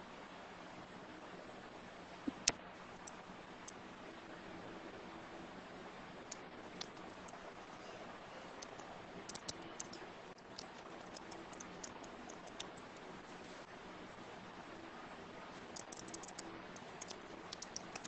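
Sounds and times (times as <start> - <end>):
faint background hiss: 0.0 - 18.0
low hum: 0.7 - 18.0
light clicks and ticks: 8.6 - 13.1, 15.7 - 18.0.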